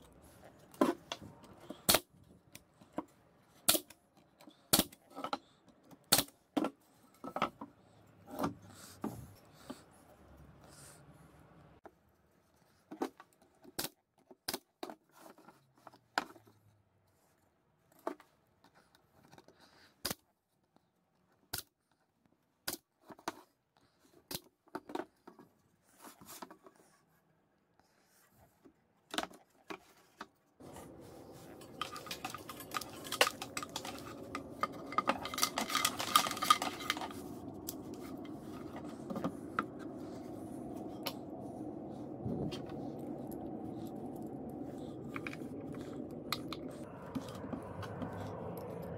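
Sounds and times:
metal tools clicking and scraping: 30.7s - 39.7s.

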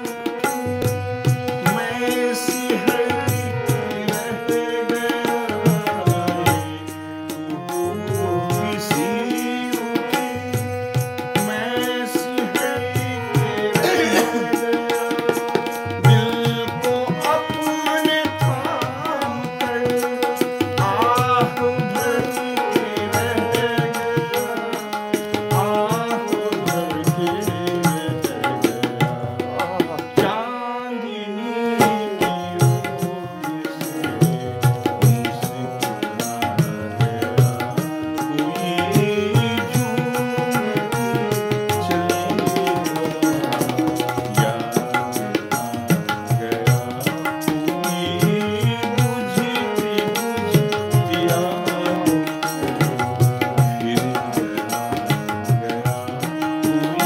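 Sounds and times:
tabla rhythm: 0.0s - 30.7s, 31.6s - 57.0s
electronic keyboard: 0.0s - 57.0s
man singing: 0.0s - 57.0s.

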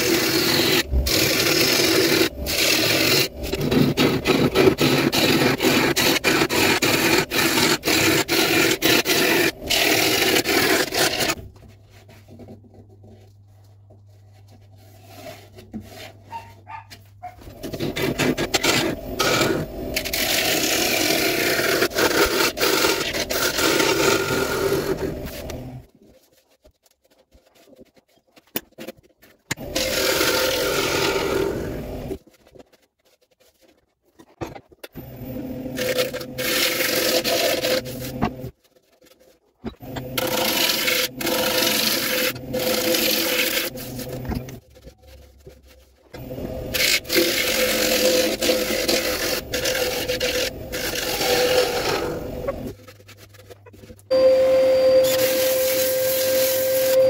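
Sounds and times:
gouge scraping wood: 0.0s - 34.4s, 35.7s - 54.1s
lathe humming: 39.8s - 44.6s, 46.2s - 52.8s
power sanding disc whirring: 46.2s - 52.8s, 54.1s - 57.0s.

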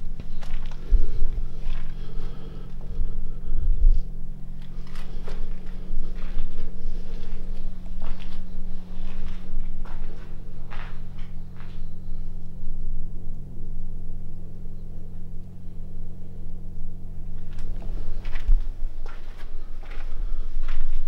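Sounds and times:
steady low hum: 0.0s - 21.0s
footsteps: 0.2s - 12.0s, 17.4s - 21.0s.

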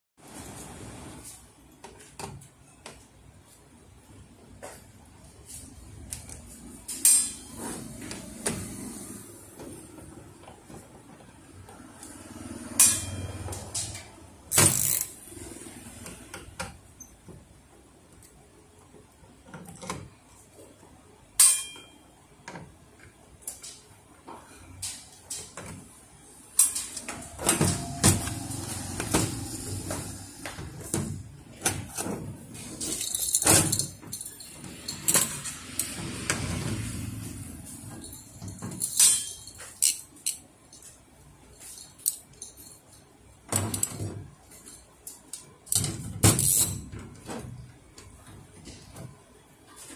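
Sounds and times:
clicks knocks and rattles of parts: 22.4s - 25.9s, 37.8s - 41.0s, 41.6s - 49.9s.

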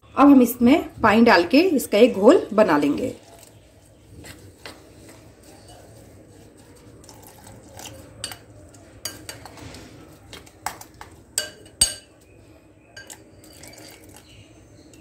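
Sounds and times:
spoon clinking against glass bowl: 7.0s - 9.6s, 10.6s - 12.3s, 12.9s - 15.0s.

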